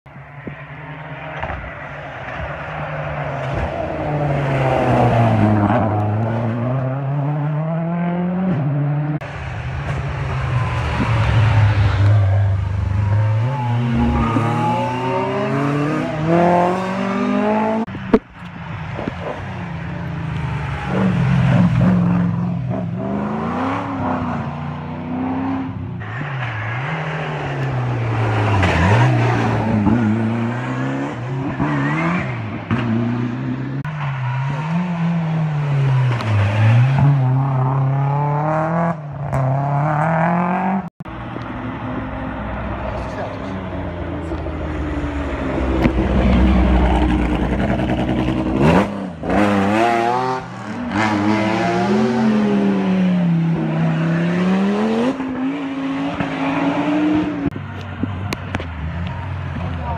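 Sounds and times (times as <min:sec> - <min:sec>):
rally car engines passing: 0:00.2 - 0:59.9.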